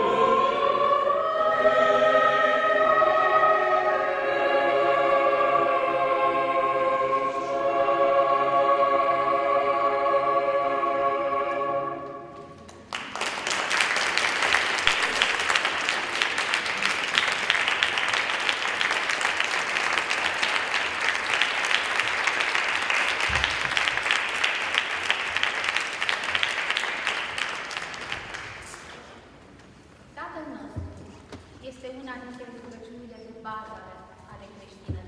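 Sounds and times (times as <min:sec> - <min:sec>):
choir holding a chord: 0:00.0 - 0:12.7
audience applause: 0:12.7 - 0:29.2.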